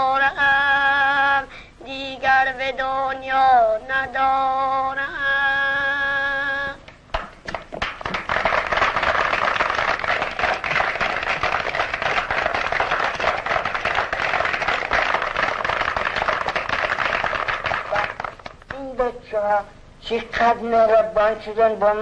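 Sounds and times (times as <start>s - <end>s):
children clapping: 7.1s - 18.8s.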